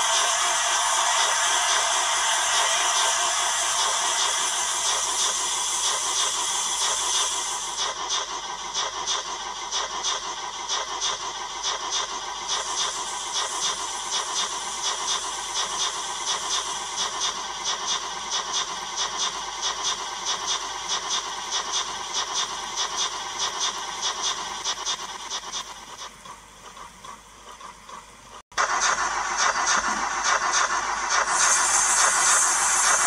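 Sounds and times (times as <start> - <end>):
loud hiss: 0.0 - 9.2, 28.6 - 33.0
steam engine chuffs from speaker: 0.0 - 33.0.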